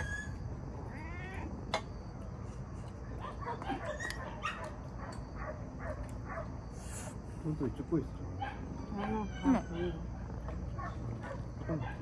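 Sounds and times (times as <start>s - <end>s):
cat mewing: 0.0s - 1.6s.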